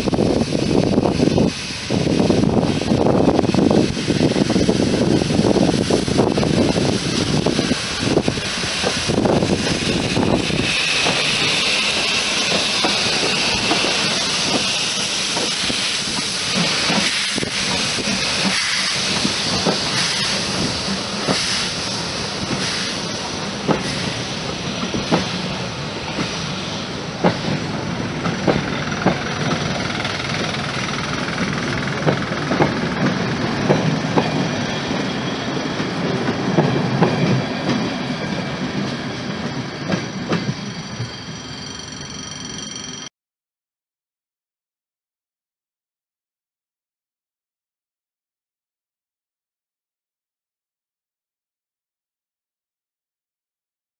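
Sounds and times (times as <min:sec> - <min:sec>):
steam locomotive hissing steam: 0:00.0 - 0:42.2
wheels clicking over rail joints: 0:28.2 - 0:34.3.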